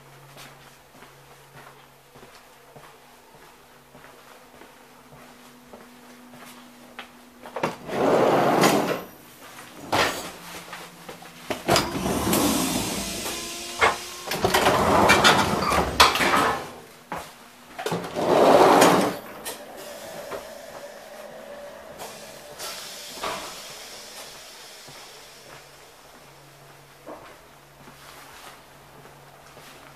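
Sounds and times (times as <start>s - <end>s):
sliding doors swishing: 7.8s - 9.1s, 11.5s - 16.8s, 17.9s - 24.4s.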